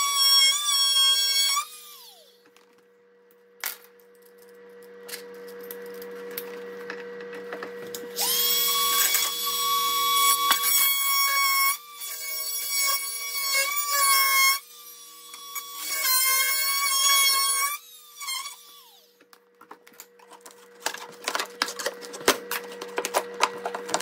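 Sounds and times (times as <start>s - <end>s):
oscillating multi-tool whining: 0.0s - 2.5s, 8.1s - 19.2s.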